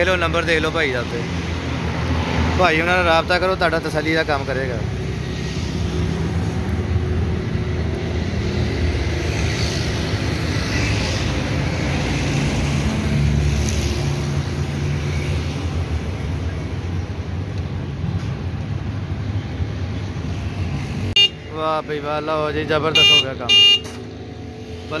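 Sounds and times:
street traffic: 0.0 - 25.0.

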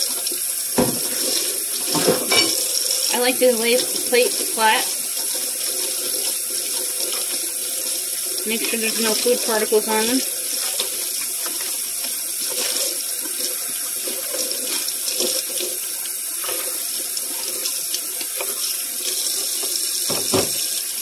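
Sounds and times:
faucet running into sink: 0.0 - 21.0
dishes knocking and clinking: 0.8 - 1.2, 1.9 - 2.7, 20.1 - 20.7.

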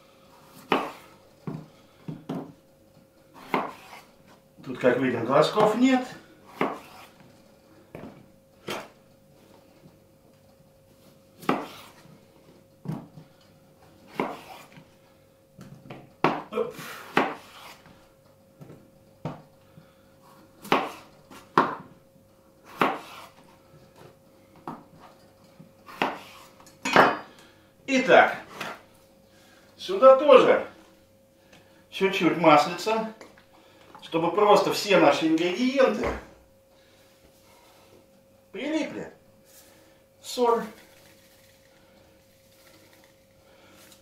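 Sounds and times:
knife chopping on wooden board: 0.6 - 1.6, 3.4 - 4.0, 6.5 - 7.1, 11.4 - 11.9, 14.1 - 14.8, 15.9 - 16.5, 17.1 - 17.8, 20.6 - 21.8, 22.7 - 23.4, 25.9 - 27.2.

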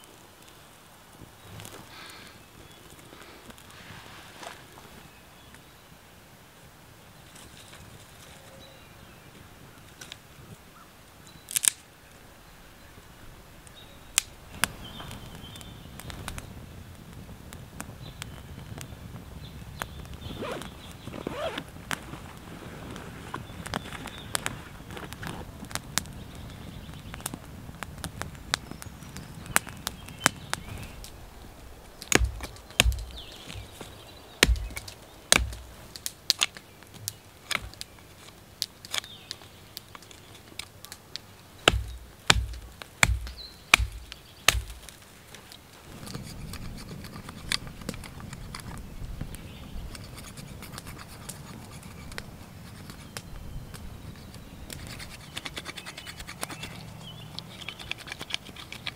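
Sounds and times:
campfire crackling: 0.0 - 58.9
knife chopping wooden stick: 32.0 - 35.8, 41.7 - 44.9.

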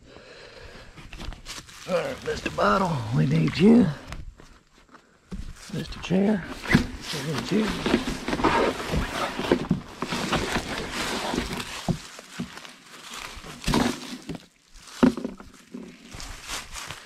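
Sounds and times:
scuffing in dry leaves: 1.2 - 3.6, 10.0 - 17.0
fabric rustling: 5.7 - 14.2
plastic chair knocks: 15.0 - 15.5.

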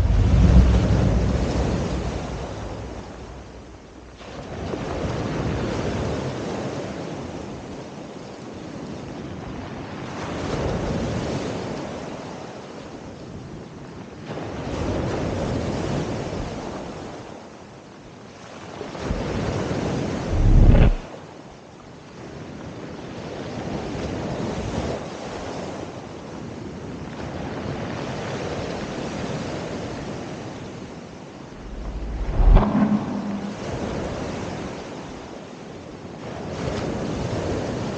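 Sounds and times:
wind buffeting microphone: 0.0 - 4.2, 20.3 - 21.0, 31.6 - 34.2.

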